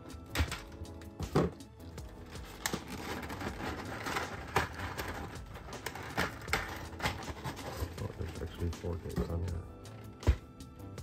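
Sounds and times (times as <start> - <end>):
rustling scrape of tape: 2.3 - 8.1.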